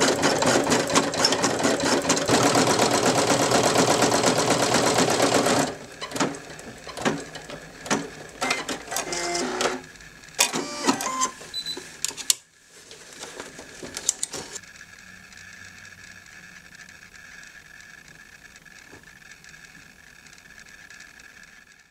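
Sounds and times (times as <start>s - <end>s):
embroidery machine stitching: 0.0s - 11.4s
machine mechanism clicks and whirrs: 3.7s - 12.4s, 13.8s - 21.9s.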